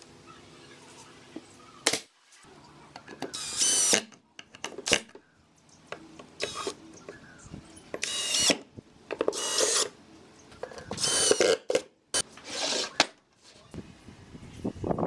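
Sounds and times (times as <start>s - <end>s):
drill driving screws into wood: 3.3s - 4.1s, 8.0s - 8.6s, 9.3s - 9.9s, 10.9s - 11.8s.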